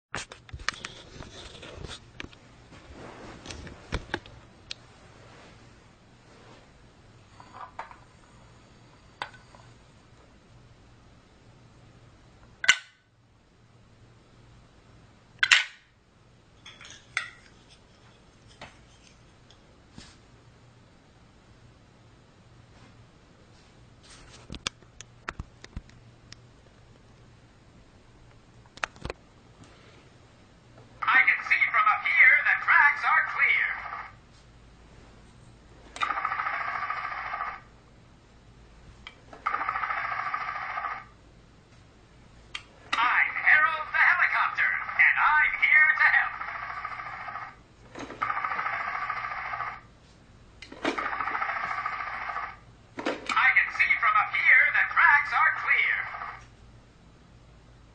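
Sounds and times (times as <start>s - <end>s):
electronic trilling ring: 36.0s - 37.7s, 39.5s - 41.1s, 46.3s - 47.6s, 48.2s - 49.8s, 51.0s - 52.6s.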